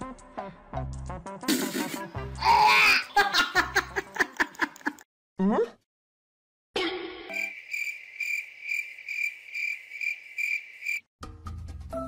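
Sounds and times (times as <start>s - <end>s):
cricket chirping: 7.3s - 11.1s.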